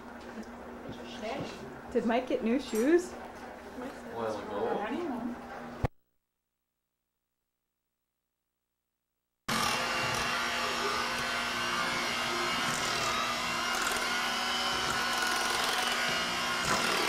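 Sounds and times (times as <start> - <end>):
electric hand mixer whipping: 9.5 - 17.0.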